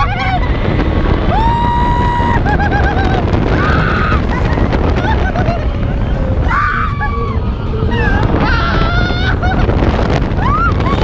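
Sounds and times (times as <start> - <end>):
riders screaming: 0.0 - 5.2
wind buffeting microphone: 0.0 - 11.0.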